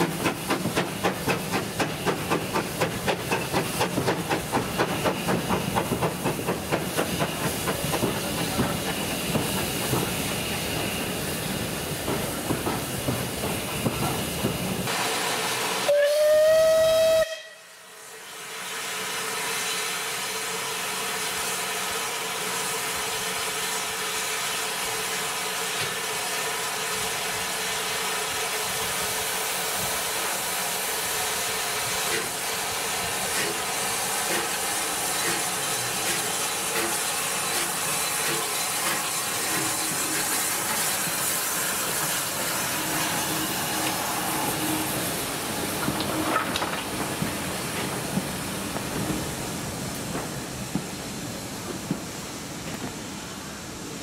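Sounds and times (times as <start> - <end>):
faint locomotive chuffs: 0.0 - 54.0
steam hissing: 0.0 - 54.0
steam whistle blast: 15.3 - 20.0.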